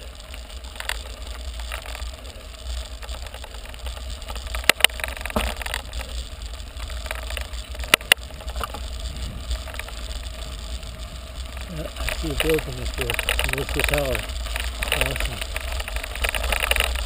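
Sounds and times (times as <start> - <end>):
bike rolling on gravel: 0.0 - 17.0
sharp knocks from bike: 4.5 - 5.9.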